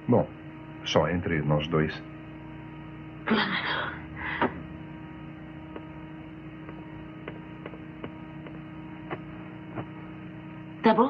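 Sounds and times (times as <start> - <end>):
steady low hum: 0.0 - 11.0
footsteps on wooden floor: 5.6 - 10.1.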